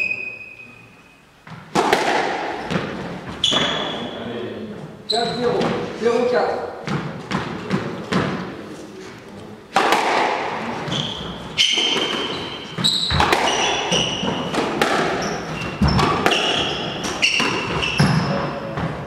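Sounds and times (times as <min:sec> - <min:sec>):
squash ball hitting rackets and walls: 0:01.4 - 0:04.2, 0:05.1 - 0:08.6, 0:09.7 - 0:19.0
shoes squeaking on wooden floor: 0:02.6 - 0:04.2, 0:05.1 - 0:06.0, 0:10.7 - 0:19.0.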